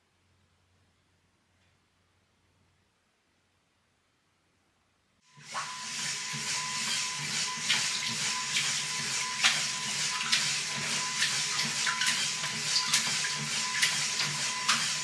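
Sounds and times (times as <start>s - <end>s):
water sloshing and splashing: 5.4s - 15.0s.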